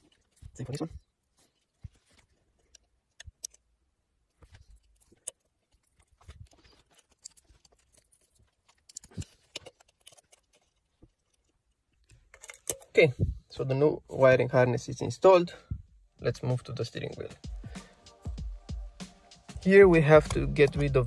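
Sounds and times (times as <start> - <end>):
hands handling plastic parts: 0.0 - 13.1.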